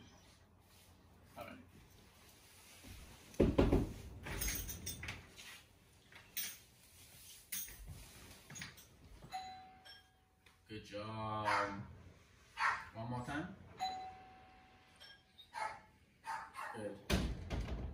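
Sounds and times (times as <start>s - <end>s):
heavy door thump: 17.1s - 17.9s.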